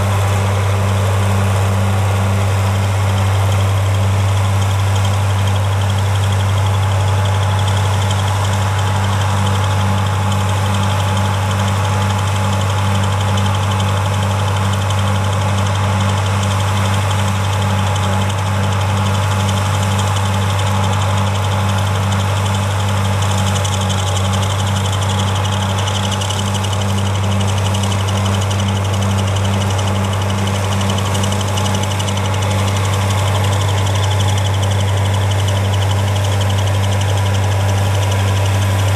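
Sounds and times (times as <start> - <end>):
tractor diesel engine running: 0.0 - 38.9.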